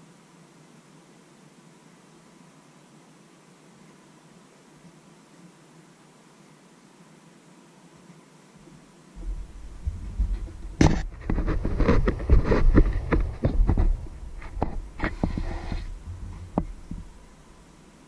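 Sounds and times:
camera handling rumbling and rubbing: 0:09.2 - 0:17.4.

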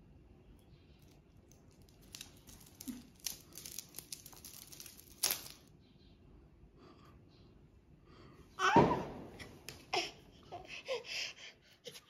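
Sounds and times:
plastic bag crinkling: 0:01.0 - 0:05.7.

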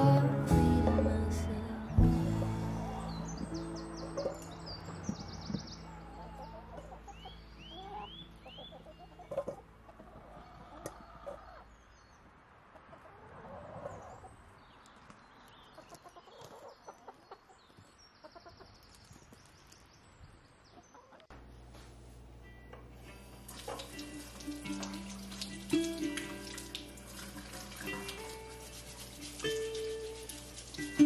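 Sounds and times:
wild birds chirping: 0:01.9 - 0:21.3
hens clucking: 0:02.4 - 0:11.7, 0:15.7 - 0:18.8.

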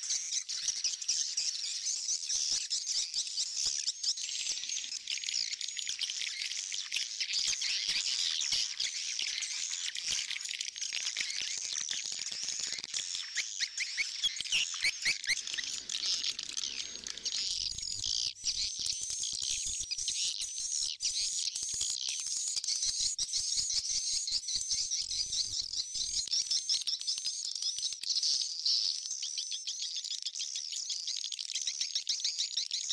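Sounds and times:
high bird chirping with rapid clicks: 0:00.0 - 0:32.9.

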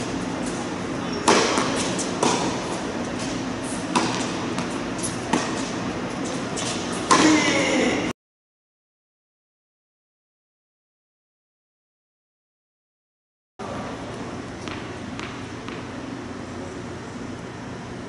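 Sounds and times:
ball bouncing on hard court: 0:01.1 - 0:07.6, 0:14.6 - 0:15.9
tennis ball struck by racket: 0:01.2 - 0:05.8, 0:06.6 - 0:07.5.

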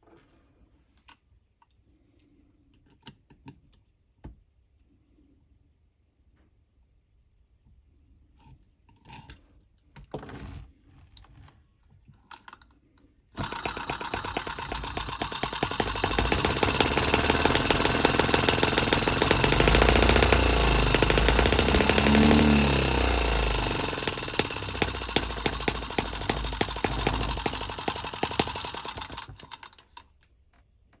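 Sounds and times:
model engine running: 0:13.4 - 0:30.0.

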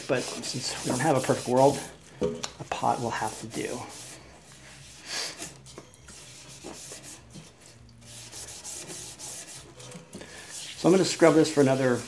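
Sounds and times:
hand scrubbing wooden stock: 0:00.0 - 0:02.0, 0:02.7 - 0:05.0, 0:06.1 - 0:09.9, 0:10.5 - 0:12.0.

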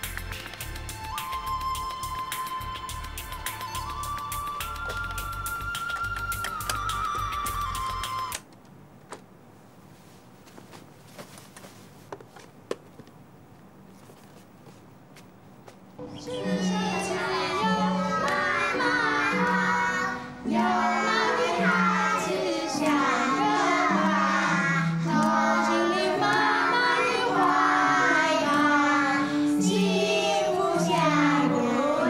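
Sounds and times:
children singing: 0:16.0 - 0:32.0
piano accompaniment: 0:16.0 - 0:32.0.

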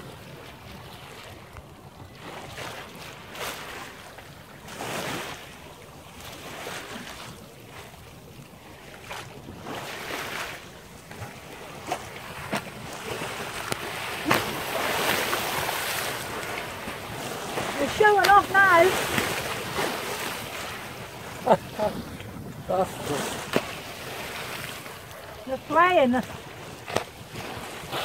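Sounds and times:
water splashing along hull: 0:00.0 - 0:28.0
wind buffeting microphone: 0:11.0 - 0:28.0.

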